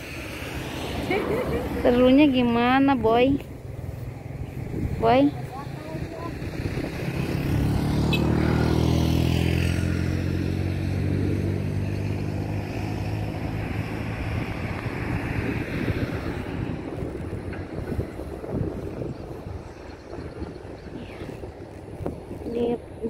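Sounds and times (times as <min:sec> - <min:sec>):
engine drone: 0:00.0 - 0:23.0.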